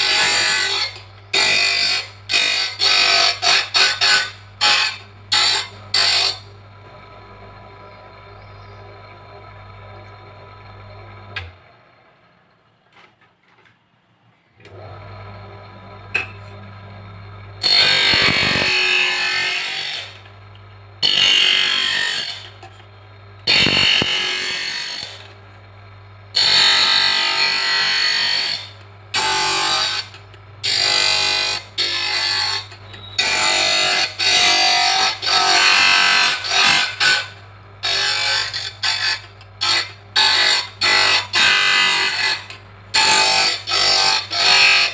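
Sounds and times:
motor humming: 14.6 - 44.9
high-pitched lens grinding: 17.6 - 20.1, 23.5 - 25.1.

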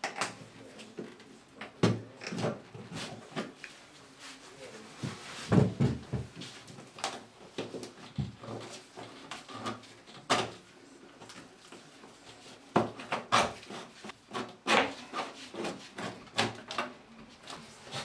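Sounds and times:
cable knocking and scraping plasterboard: 12.7 - 17.0.

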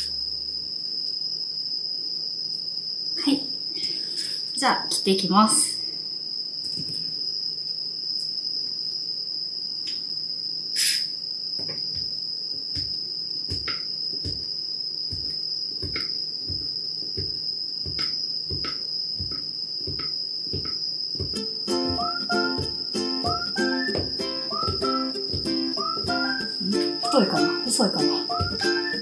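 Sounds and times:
high-pitched whine: 0.0 - 1.2, 15.1 - 29.0.

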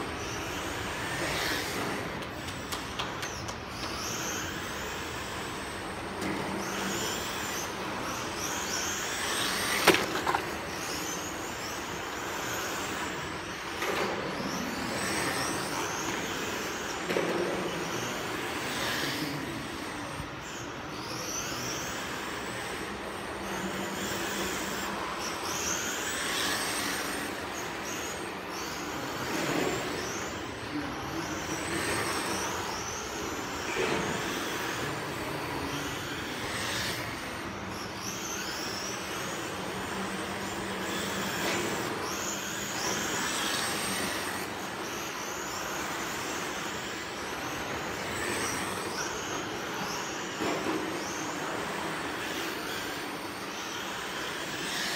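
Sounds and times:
high-pitched motor whines: 0.0 - 54.9.

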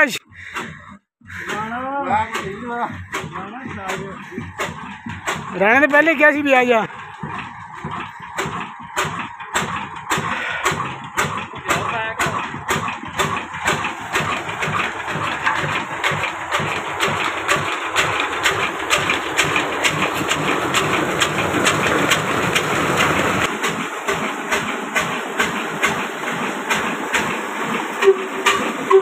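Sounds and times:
diesel engine running steadily: 0.0 - 29.0
water gushing and splashing: 9.6 - 29.0.

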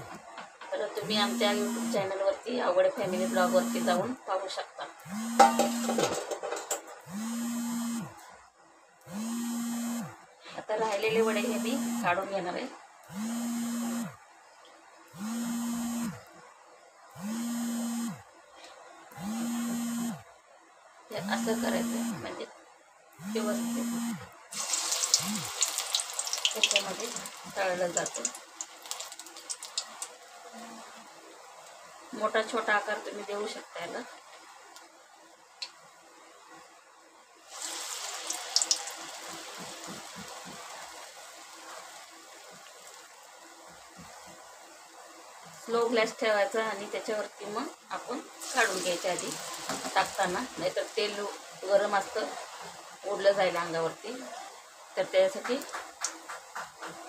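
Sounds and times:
small electric motor buzzing: 3.0 - 4.1, 5.0 - 6.0, 7.0 - 8.2, 9.0 - 10.2, 11.4 - 12.1, 13.0 - 14.2, 15.1 - 16.3, 17.1 - 18.2, 19.2 - 20.2, 21.1 - 22.3, 23.2 - 31.1
batter sizzling in hot oil: 24.5 - 30.3, 37.5 - 45.0, 45.6 - 54.2, 54.9 - 57.0.

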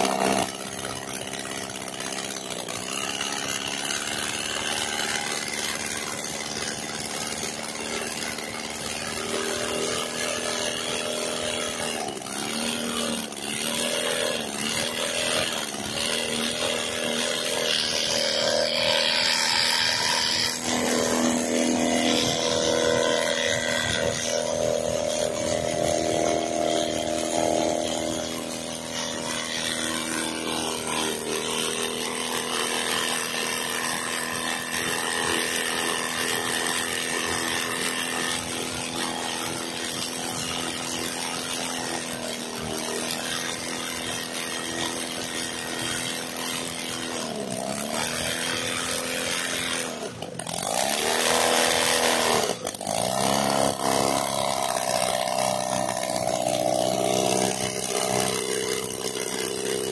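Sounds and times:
aircraft engine running: 19.2 - 30.9.

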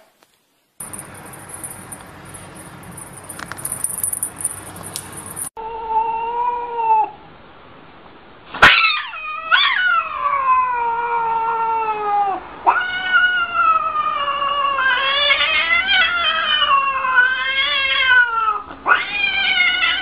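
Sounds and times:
cat yowling: 5.6 - 7.2, 8.6 - 20.0.

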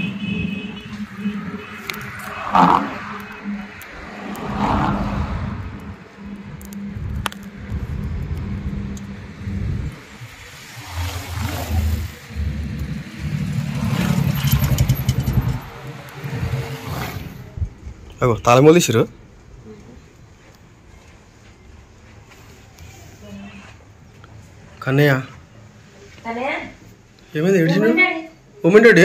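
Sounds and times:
vehicle engine running: 11.2 - 16.6.

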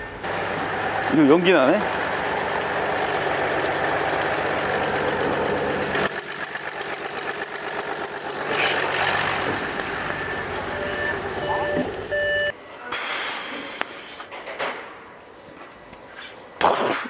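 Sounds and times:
diesel engine idling roughly: 0.3 - 11.4.

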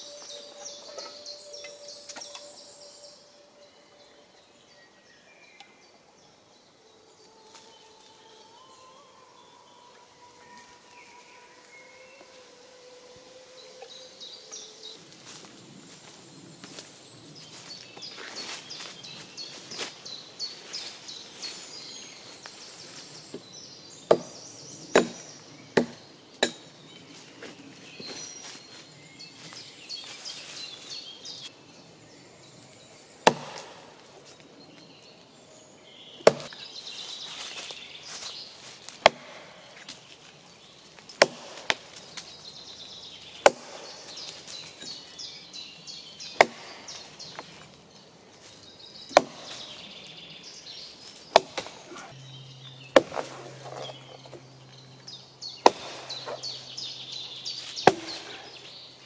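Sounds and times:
axe chopping into log: 24.1 - 25.2, 25.8 - 26.6, 33.3 - 33.7, 36.2 - 36.6, 39.0 - 39.4, 41.1 - 41.9, 43.4 - 44.3, 46.4 - 47.4, 49.1 - 49.6, 51.3 - 52.0, 52.9 - 54.0, 55.6 - 56.5, 57.8 - 58.4.

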